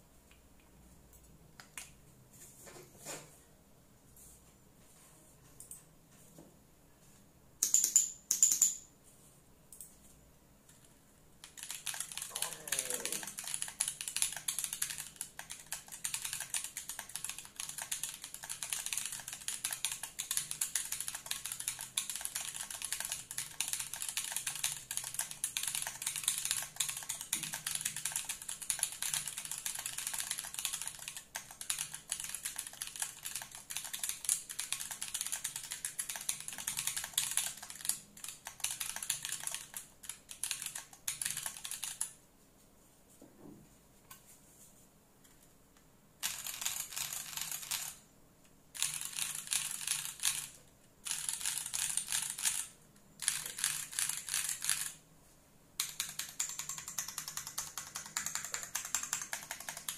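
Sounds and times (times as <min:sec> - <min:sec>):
fast mechanical keyboard typing: 0:11.4 - 0:42.2, 0:46.2 - 0:48.0, 0:48.8 - 0:55.0, 0:55.8 - 0:59.9.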